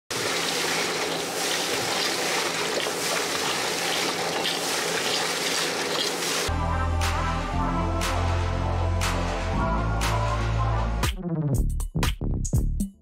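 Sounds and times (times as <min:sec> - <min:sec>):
wet concrete rushing from pump hose: 0:00.1 - 0:06.5
music: 0:06.5 - 0:13.0.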